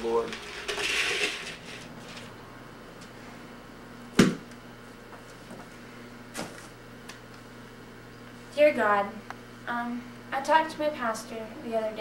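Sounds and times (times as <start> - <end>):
low electrical hum: 0.0 - 12.0
sharp knock: 4.2 - 4.4.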